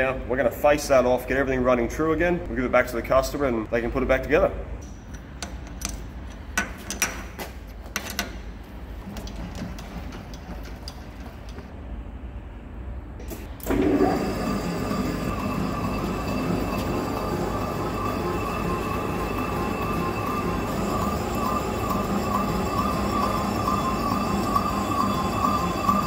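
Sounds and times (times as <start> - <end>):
metallic clicks and knocks: 4.8 - 8.5
lathe running with a whine: 13.6 - 26.0.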